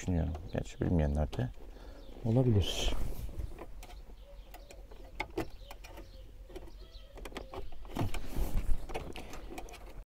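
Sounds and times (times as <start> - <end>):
metal sleeve clicking and scraping: 3.5 - 10.0.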